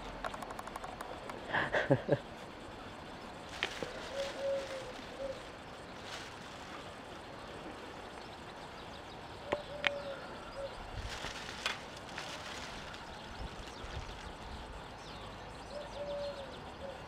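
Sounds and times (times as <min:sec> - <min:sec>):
outdoor background noise: 0:00.0 - 0:17.0
sharp clicks: 0:00.2 - 0:01.5
dove cooing: 0:03.6 - 0:05.6, 0:09.4 - 0:10.9, 0:15.7 - 0:17.0.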